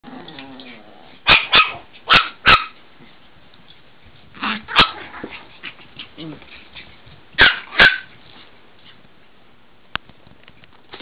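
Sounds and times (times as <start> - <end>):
puppies barking: 1.2 - 2.8, 7.4 - 8.1.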